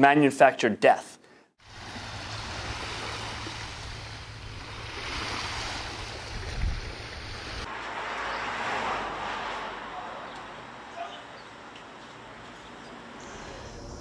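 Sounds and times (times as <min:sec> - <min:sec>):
outdoor background hiss: 0:00.0 - 0:08.0
small waves on pebble beach: 0:01.6 - 0:09.0
wind rumbling on microphone: 0:01.7 - 0:07.7.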